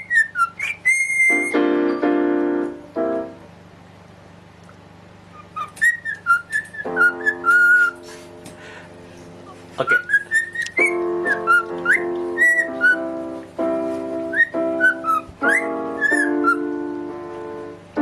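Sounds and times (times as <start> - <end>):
cockatiel whistling: 0.0 - 1.6, 5.3 - 8.0, 9.8 - 13.2, 14.3 - 16.8
held keyboard notes: 1.3 - 3.8, 5.4 - 18.0.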